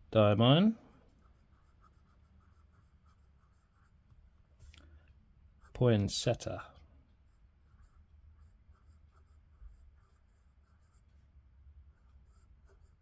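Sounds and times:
fountain pen scratching on paper: 1.2 - 4.0, 7.3 - 11.2, 11.9 - 13.0.

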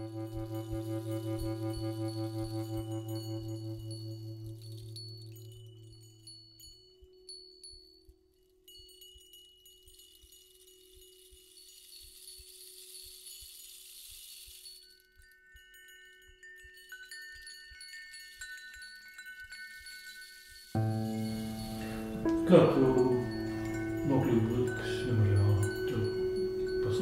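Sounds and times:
low steady drone: 0.0 - 6.1, 20.8 - 27.0
soft chime-like tones: 0.0 - 27.0
hiss: 11.2 - 14.9.

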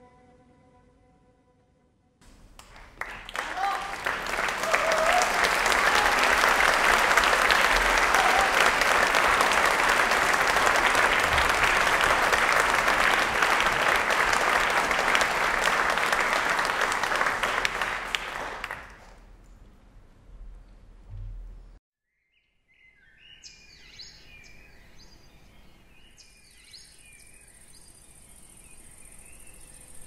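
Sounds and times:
audience applauding: 2.2 - 19.2.

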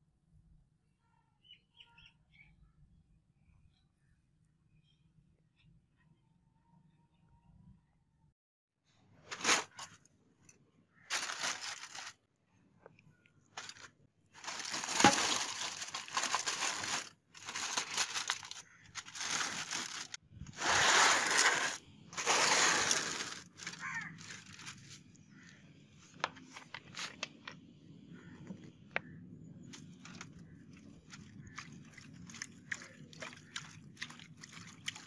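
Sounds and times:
aluminium foil crinkling: 11.1 - 12.2, 13.6 - 25.1.

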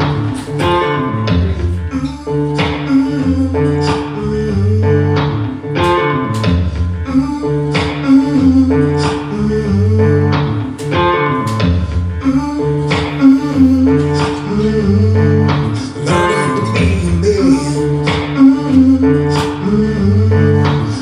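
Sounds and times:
low sustained bass notes: 0.0 - 2.2, 13.6 - 15.9
strummed guitar chords: 0.0 - 21.0.

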